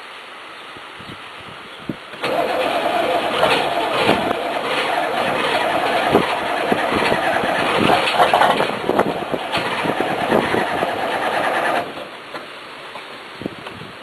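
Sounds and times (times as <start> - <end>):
diesel engine knocking: 2.2 - 12.1.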